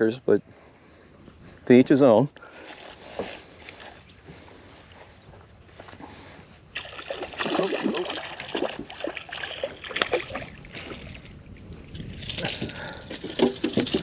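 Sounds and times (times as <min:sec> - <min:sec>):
fish splashing at water surface: 0:06.8 - 0:11.3.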